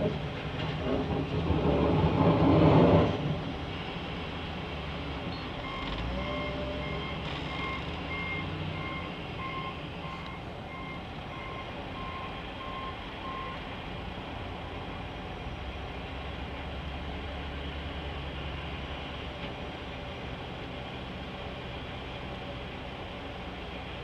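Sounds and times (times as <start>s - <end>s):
engines rumbling: 0.0s - 24.0s
reversing alarm beeping: 5.3s - 13.6s.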